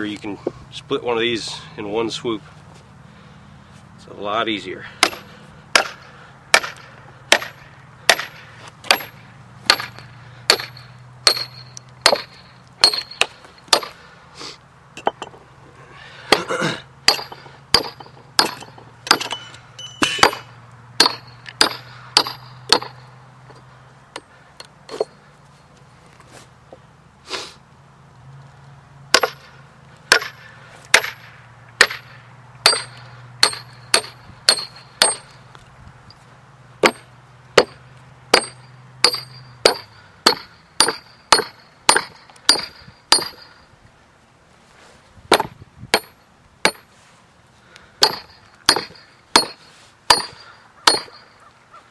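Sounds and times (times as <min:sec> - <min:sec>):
hammer striking steel wedges: 0:05.0 - 0:14.0, 0:15.0 - 0:15.4, 0:16.3 - 0:25.2, 0:29.1 - 0:35.4, 0:36.8 - 0:43.6, 0:45.3 - 0:46.9, 0:48.0 - 0:51.3.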